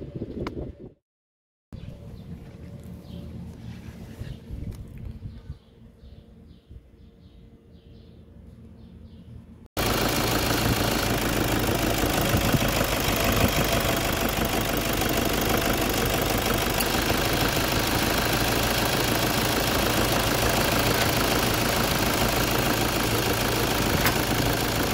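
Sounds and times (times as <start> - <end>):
diesel engine idling: 9.8 - 24.9.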